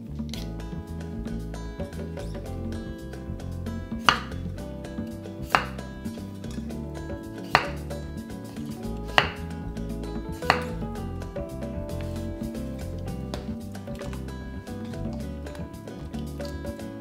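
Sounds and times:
background music: 0.0 - 17.0
knife striking cutting board: 3.9 - 9.6, 10.2 - 10.9.

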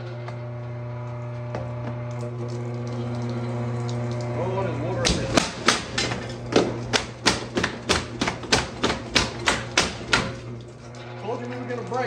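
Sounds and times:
power hammer pounding ice: 5.0 - 10.6.

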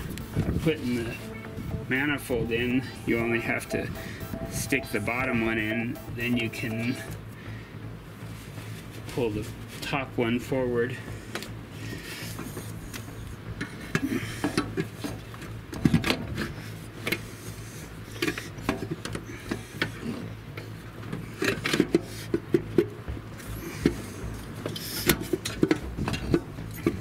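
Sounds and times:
steady low hum: 0.0 - 15.8
engine parts clicking and knocking: 7.6 - 27.0.

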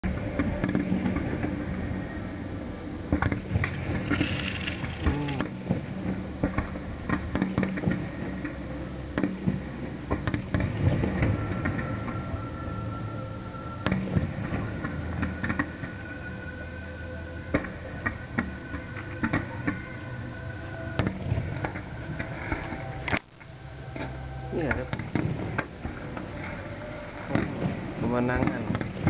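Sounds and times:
distant fireworks bangs and crackles: 3.1 - 8.6, 9.2 - 12.2, 27.3 - 29.0.

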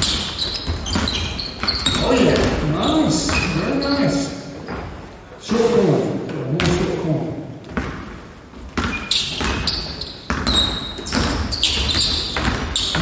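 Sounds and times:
sneakers squeaking: 0.0 - 5.7, 7.6 - 13.0
basketball bouncing on hardwood: 7.7 - 13.0.

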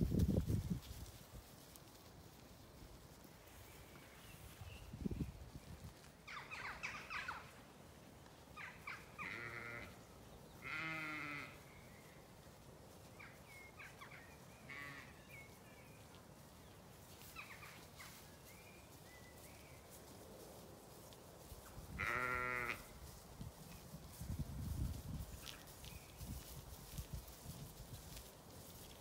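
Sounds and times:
sheep bleating: 9.2 - 10.0, 10.6 - 11.6, 14.7 - 15.2, 22.0 - 22.9.

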